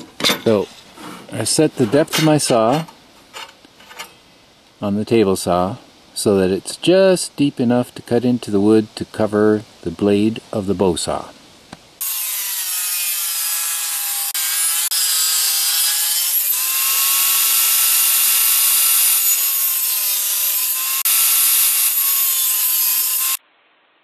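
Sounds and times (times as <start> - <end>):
table saw cutting wood: 12.0 - 23.4.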